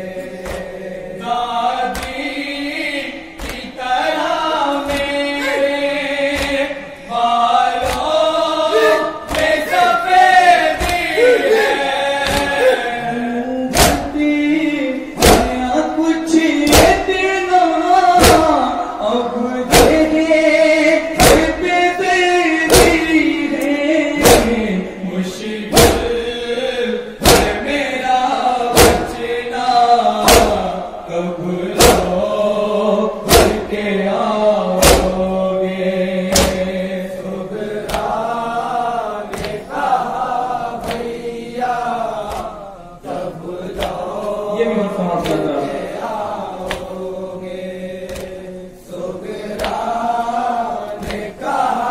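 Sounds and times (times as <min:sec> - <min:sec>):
men chanting in unison: 0:00.0 - 0:51.9
chest-beating slaps: 0:00.4 - 0:00.8, 0:01.9 - 0:02.3, 0:03.4 - 0:03.7, 0:04.8 - 0:05.3, 0:06.3 - 0:06.7, 0:07.8 - 0:09.8, 0:10.8 - 0:12.8, 0:13.7 - 0:14.2, 0:15.2 - 0:15.6, 0:16.6 - 0:17.1, 0:18.2 - 0:18.6, 0:19.7 - 0:20.1, 0:21.2 - 0:21.6, 0:22.7 - 0:24.6, 0:25.7 - 0:26.2, 0:27.2 - 0:27.6, 0:28.8 - 0:29.2, 0:30.2 - 0:30.7, 0:31.8 - 0:32.2, 0:33.3 - 0:33.7, 0:34.8 - 0:35.2, 0:36.3 - 0:36.7, 0:37.8 - 0:38.2, 0:39.3 - 0:39.7, 0:40.8 - 0:41.2, 0:42.2 - 0:42.6, 0:43.7 - 0:44.4, 0:45.2 - 0:45.5, 0:46.6 - 0:47.0, 0:48.1 - 0:48.4, 0:49.5 - 0:49.9, 0:50.9 - 0:51.4.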